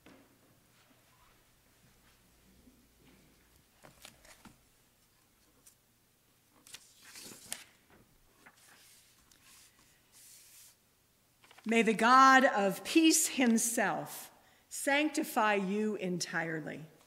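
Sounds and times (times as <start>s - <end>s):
paper rustling: 3.5s - 5.8s, 6.5s - 10.8s, 11.4s - 11.7s.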